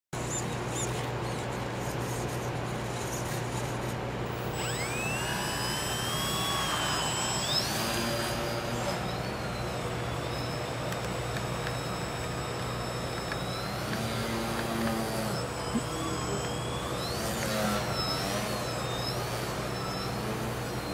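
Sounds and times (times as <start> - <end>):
electric motor and propeller whine: 0.2 - 20.9.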